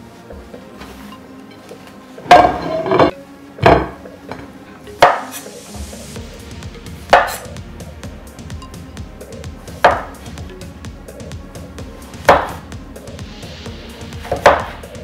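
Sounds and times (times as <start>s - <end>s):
soft background music: 0.0s - 15.0s
ceramic plate set on wooden table: 2.2s - 5.5s
knife chopping on cutting board: 5.0s - 5.4s, 7.1s - 7.5s, 9.8s - 10.2s, 12.2s - 12.6s, 14.2s - 14.8s.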